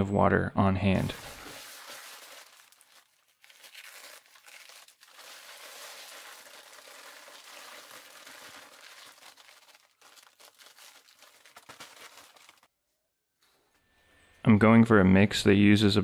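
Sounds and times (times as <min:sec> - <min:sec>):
dry concrete mix pouring: 0:01.0 - 0:12.7
paper bag crinkling: 0:01.0 - 0:12.7.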